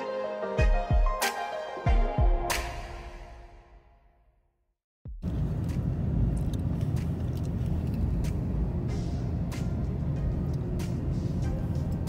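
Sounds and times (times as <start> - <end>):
car engine and tyres rumbling: 5.2 - 12.0.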